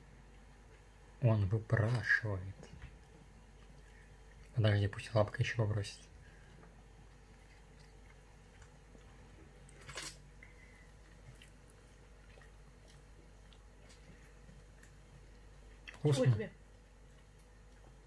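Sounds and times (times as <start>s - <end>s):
cat chewing: 2.6s - 4.6s, 6.2s - 16.0s.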